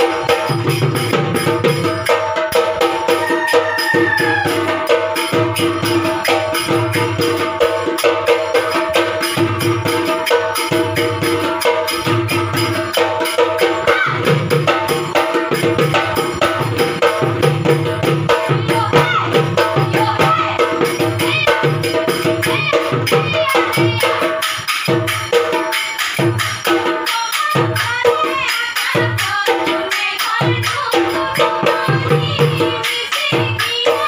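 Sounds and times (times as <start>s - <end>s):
fast drumming: 0.0s - 34.0s
hand cymbals clattering: 0.0s - 34.0s.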